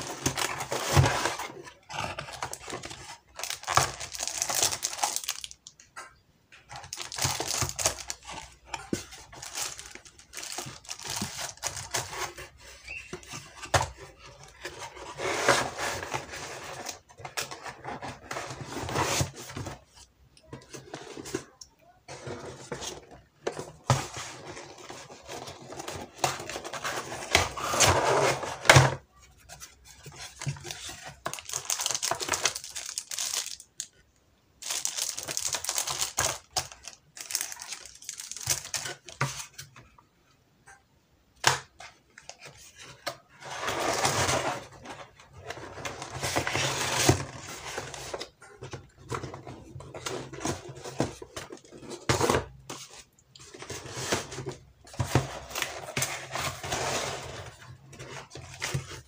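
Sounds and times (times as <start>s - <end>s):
plastic wrapping crinkling: 0.0s - 5.8s, 6.6s - 15.2s, 30.1s - 34.0s, 34.6s - 39.3s.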